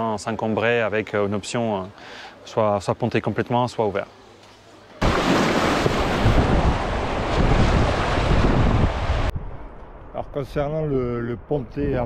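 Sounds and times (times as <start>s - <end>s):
rushing river water: 5.0s - 9.3s
wind buffeting microphone: 5.8s - 12.0s.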